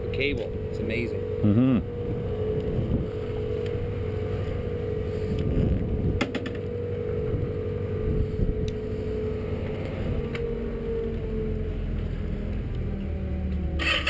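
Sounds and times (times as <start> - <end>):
ferry machinery droning: 0.0 - 14.0.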